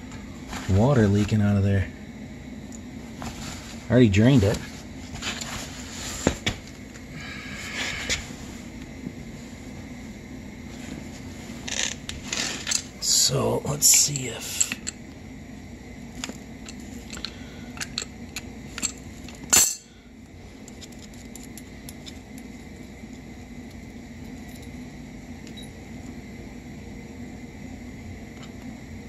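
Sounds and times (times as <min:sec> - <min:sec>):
steady low hum: 0:00.0 - 0:29.0
metal clank: 0:19.5 - 0:19.9.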